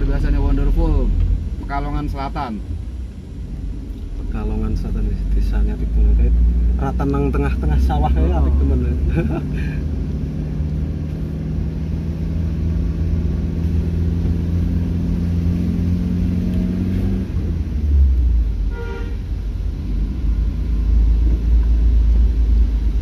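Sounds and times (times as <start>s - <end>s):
vehicle engine running: 0.0s - 23.0s
short horn toot: 18.7s - 19.3s.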